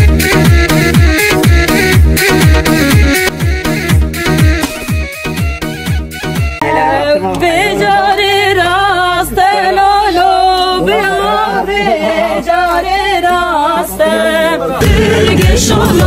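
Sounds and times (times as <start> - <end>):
drum beat: 0.0 - 6.6, 14.8 - 16.0
person singing with vibrato: 6.6 - 16.0.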